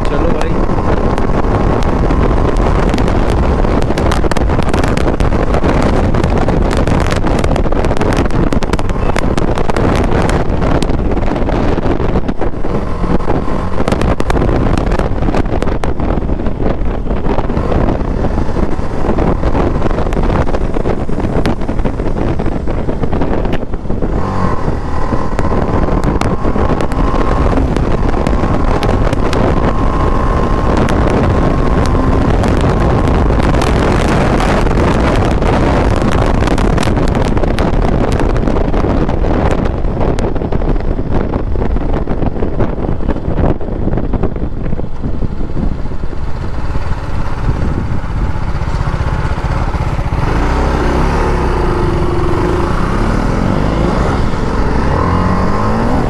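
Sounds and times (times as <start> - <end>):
motorcycle engine running: 0.0 - 56.0
wind noise on microphone: 0.0 - 56.0.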